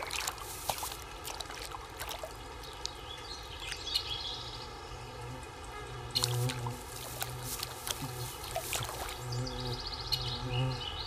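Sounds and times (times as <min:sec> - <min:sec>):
water splashing and sloshing: 0:00.0 - 0:04.1, 0:06.1 - 0:09.3.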